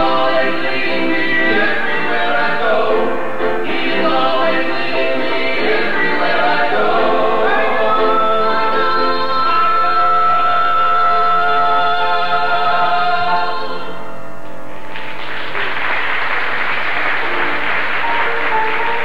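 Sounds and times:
gospel group singing a chord: 0.0s - 14.2s
congregation applauding: 14.7s - 19.0s.

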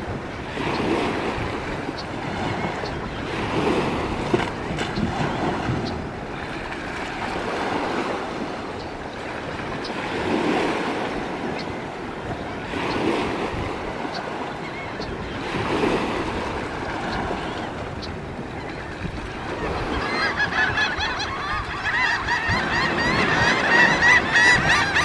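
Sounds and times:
waves washing in: 0.0s - 25.0s
wind buffeting microphone: 0.0s - 25.0s.

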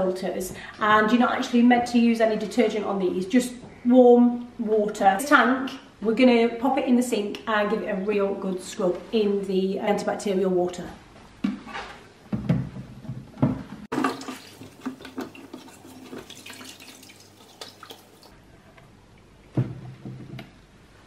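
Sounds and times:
cloth scrubbing plastic: 13.9s - 18.3s
water sloshing and splashing: 13.9s - 18.4s.

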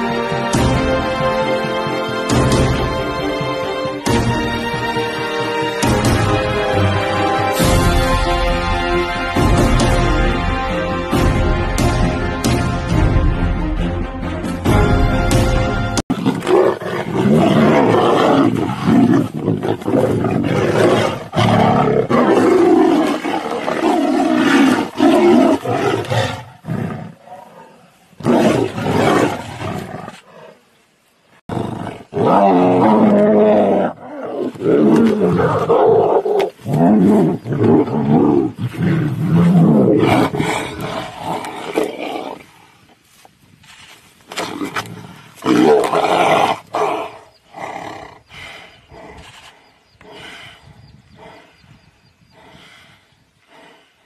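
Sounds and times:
tigers roaring: 16.1s - 30.6s, 31.5s - 42.5s.

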